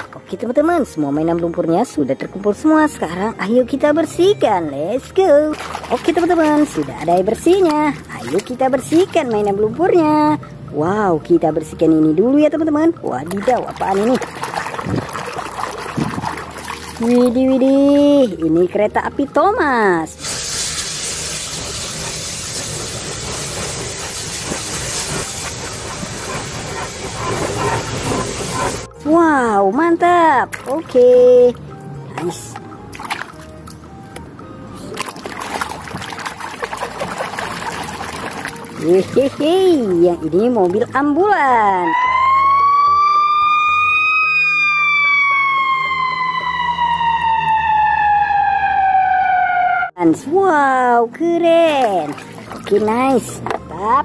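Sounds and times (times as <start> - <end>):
steam hissing: 20.2 - 28.9
locomotive rumble: 21.1 - 29.0
ambulance siren wailing: 41.5 - 50.0.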